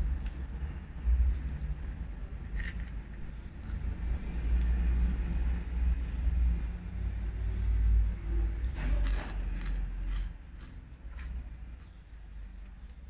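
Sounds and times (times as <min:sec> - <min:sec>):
fried fish crackling when torn: 0:02.5 - 0:04.8.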